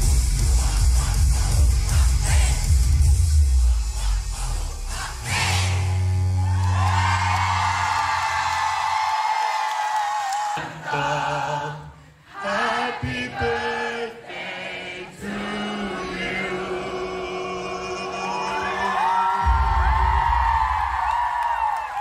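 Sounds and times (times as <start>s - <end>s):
live concert singing voices: 0.0s - 6.1s, 9.9s - 21.0s.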